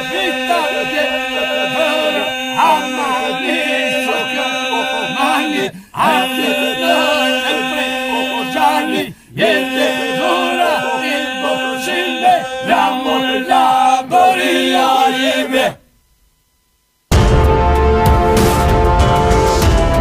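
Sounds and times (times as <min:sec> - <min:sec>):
men singing unaccompanied: 0:00.0 - 0:15.8
held vocal drone: 0:00.0 - 0:15.9.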